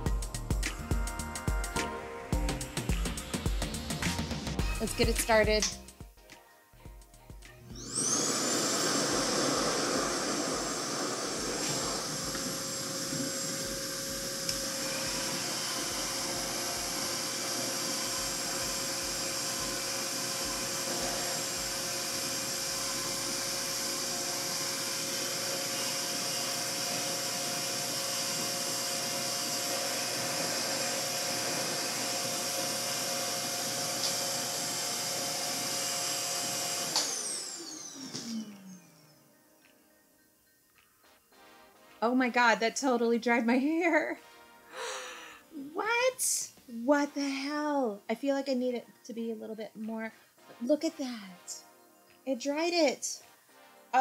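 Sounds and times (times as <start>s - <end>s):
hair dryer running: 7.7s - 39.1s
hair dryer winding down whine: 7.7s - 39.2s.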